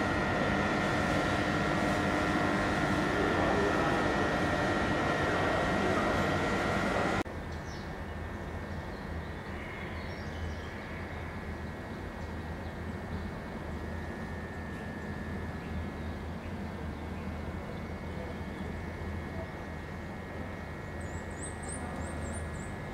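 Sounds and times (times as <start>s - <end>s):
low hum: 0.0s - 7.2s
rushing noise with whining tones: 0.0s - 7.2s.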